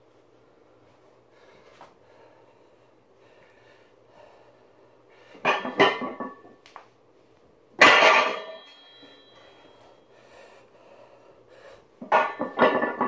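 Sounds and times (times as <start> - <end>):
weight plates clattering: 5.5 - 6.4, 7.8 - 9.3, 12.0 - 13.0
loud metal clang: 7.8 - 9.3
plates ringing: 7.8 - 9.9, 12.1 - 13.0.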